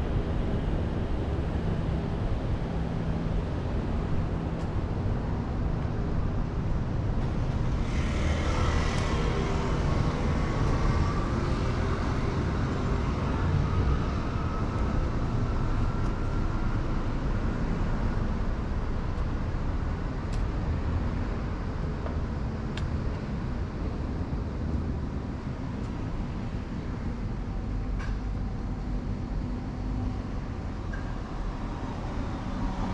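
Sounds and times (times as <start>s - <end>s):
low city rumble: 0.0s - 32.9s
passing vehicle hiss: 7.6s - 12.5s.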